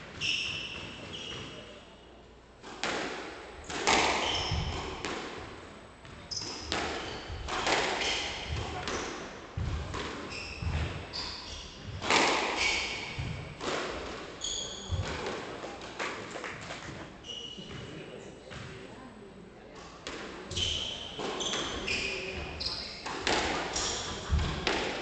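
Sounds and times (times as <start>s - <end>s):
squash ball hitting rackets and walls: 0.0s - 1.8s, 2.6s - 17.0s, 20.0s - 25.0s
shoes squeaking on wooden floor: 14.4s - 15.2s.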